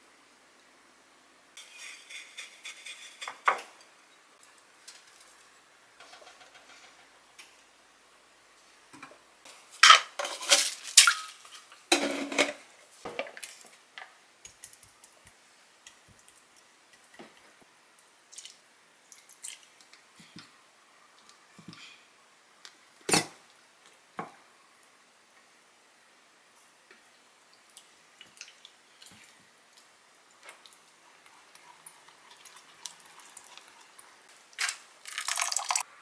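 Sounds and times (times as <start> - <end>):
cookware clinking and clattering: 9.8 - 13.3.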